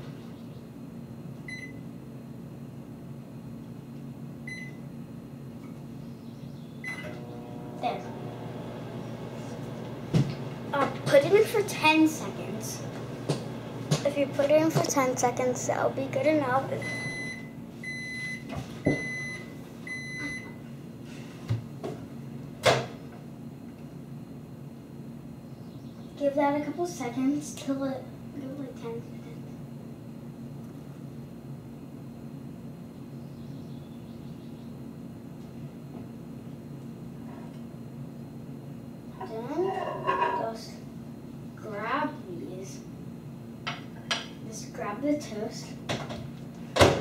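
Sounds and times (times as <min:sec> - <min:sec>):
low steady hum: 0:00.0 - 0:21.0
microwave oven humming: 0:00.0 - 0:47.0
microwave oven beeping: 0:01.4 - 0:02.0, 0:04.4 - 0:05.0, 0:06.8 - 0:14.4, 0:15.3 - 0:20.6
knocks on kitchen counter: 0:45.9 - 0:47.0.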